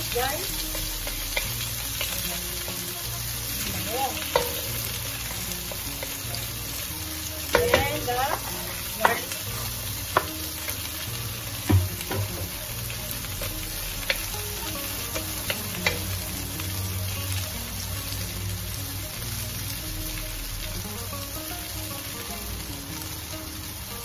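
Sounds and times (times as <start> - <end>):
garlic and onion sizzling in oil: 0.0 - 24.0
spatula scraping and knocking pan: 3.8 - 6.2, 7.5 - 10.5, 11.6 - 12.8.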